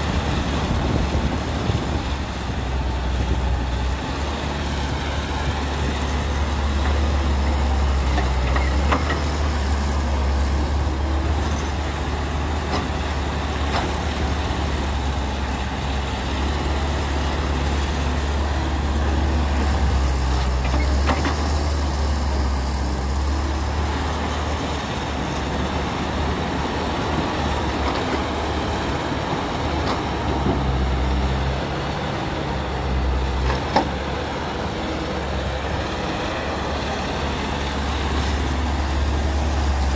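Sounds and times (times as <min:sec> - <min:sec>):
excavator diesel engine drone: 0:00.0 - 0:39.9.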